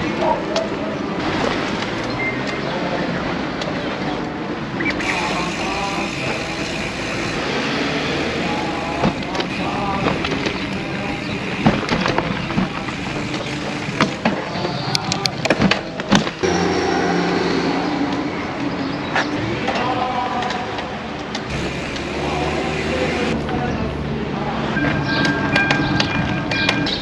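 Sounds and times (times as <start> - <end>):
bicycle road noise: 0.0 - 27.0.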